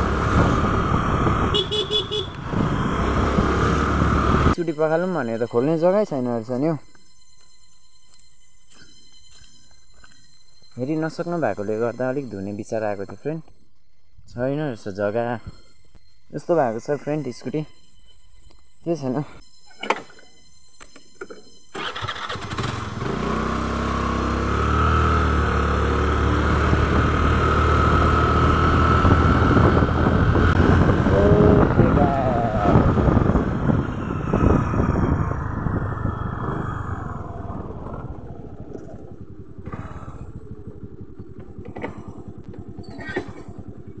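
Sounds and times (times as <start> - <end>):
wind noise on microphone: 0.0 - 4.6, 26.6 - 39.4
scooter engine running: 21.8 - 44.0.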